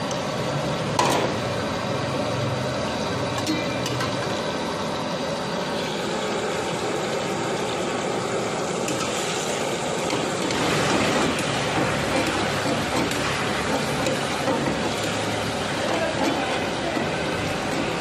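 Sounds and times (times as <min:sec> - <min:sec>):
gas burner rushing: 0:00.0 - 0:18.0
fat sizzling in a pan: 0:03.6 - 0:18.0.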